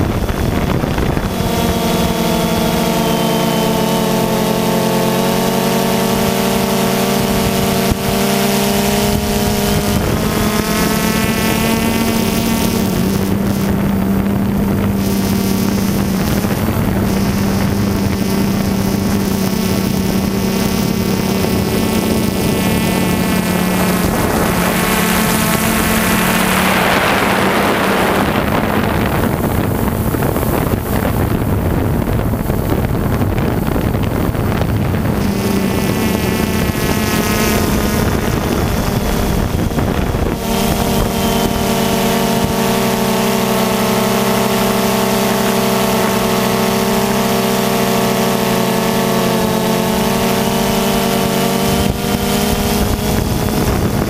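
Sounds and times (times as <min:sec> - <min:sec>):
drone propellers buzzing: 0:00.0 - 0:54.0
wind noise rush: 0:00.0 - 0:54.0.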